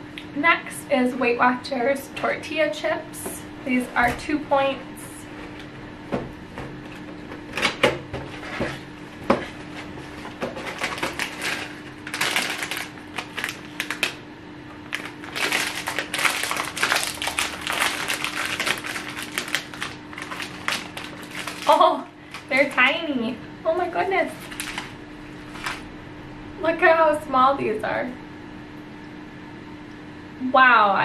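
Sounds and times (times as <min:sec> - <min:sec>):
snack bag crinkling: 0:10.6 - 0:14.2, 0:14.8 - 0:23.0, 0:24.4 - 0:25.0.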